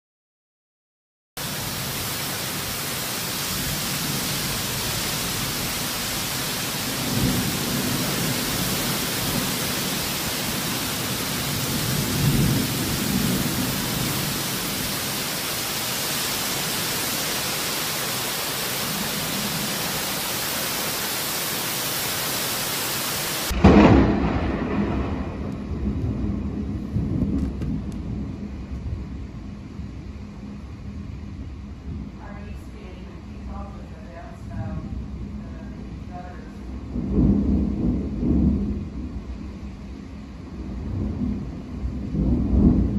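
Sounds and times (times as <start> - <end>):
heavy wind-driven rain: 1.4 - 42.9
loud low thunder rumble: 3.4 - 16.8, 23.5 - 42.9.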